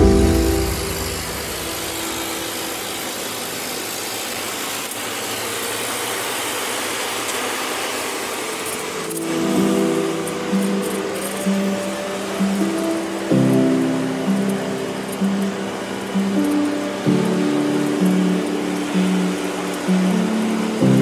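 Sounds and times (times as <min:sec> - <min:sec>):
music: 0:00.0 - 0:02.3, 0:09.0 - 0:21.0
tyre and wind road noise: 0:00.0 - 0:21.0.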